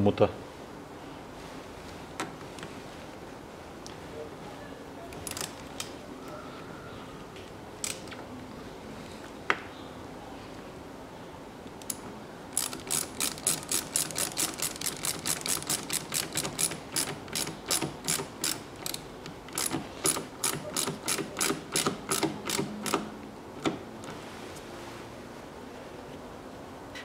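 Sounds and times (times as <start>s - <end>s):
ratchet tool clicking: 12.6s - 23.1s.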